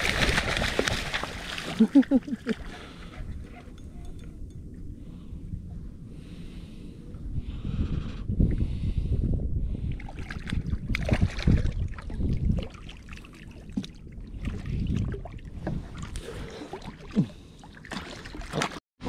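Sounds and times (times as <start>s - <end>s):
water splashing: 0.0s - 3.0s, 10.1s - 18.8s.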